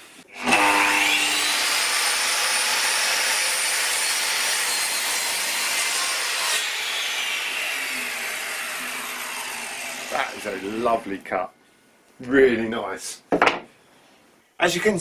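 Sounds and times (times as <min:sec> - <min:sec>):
mitre saw cutting board: 0:00.0 - 0:11.2.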